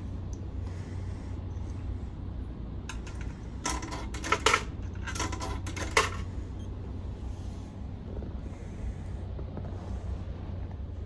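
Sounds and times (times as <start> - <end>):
steady low hum: 0.0 - 11.0
coins clinking into coin box: 2.9 - 6.3.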